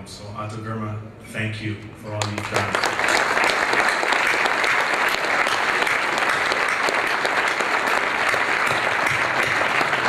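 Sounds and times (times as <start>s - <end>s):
crowd applauding: 2.2s - 10.0s.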